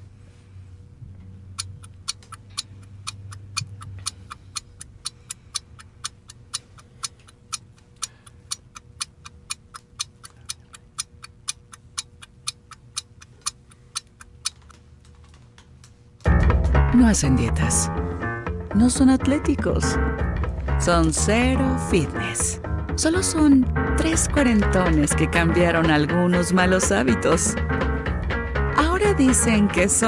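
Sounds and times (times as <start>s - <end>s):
clock ticking: 1.6s - 14.7s.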